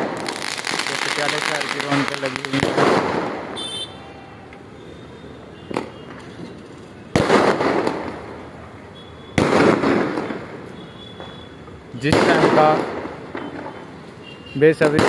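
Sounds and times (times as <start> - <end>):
loud firework bangs: 0.0 - 3.9, 5.6 - 6.2, 7.1 - 8.6, 9.2 - 11.4, 12.0 - 14.0, 14.7 - 15.0.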